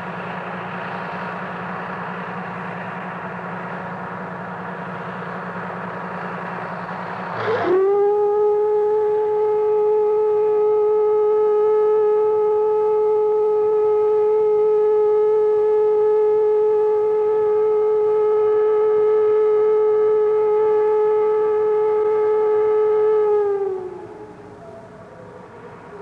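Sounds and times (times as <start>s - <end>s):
whistle blowing steady note: 6.0s - 26.0s.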